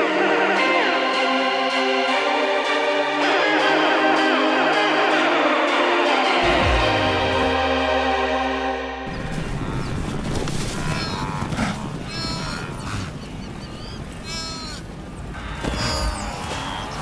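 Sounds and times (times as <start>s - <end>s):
animal bleating in distress: 10.7s - 13.1s, 14.2s - 14.8s.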